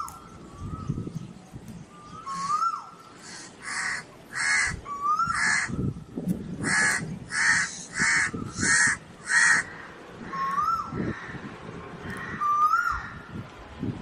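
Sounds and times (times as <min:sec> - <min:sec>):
crow cawing: 0:03.2 - 0:05.8, 0:06.6 - 0:11.5.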